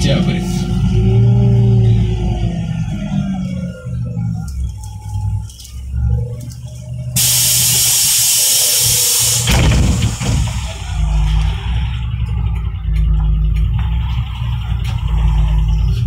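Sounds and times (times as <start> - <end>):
bus engine rumbling: 0.0 - 16.0
compressed air hiss: 7.2 - 10.8
thump: 9.4 - 10.6.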